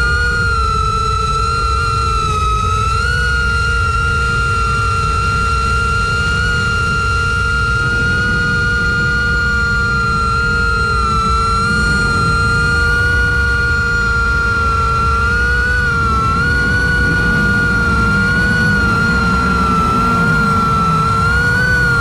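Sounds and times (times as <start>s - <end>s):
quadcopter motors whining: 0.0s - 22.0s
low rumble: 5.7s - 22.0s.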